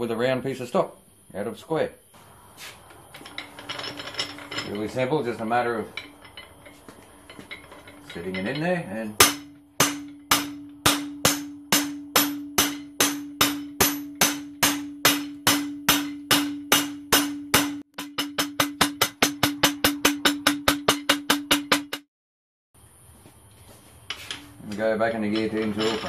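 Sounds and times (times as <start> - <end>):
hammer striking metal tool: 7.3 - 22.1.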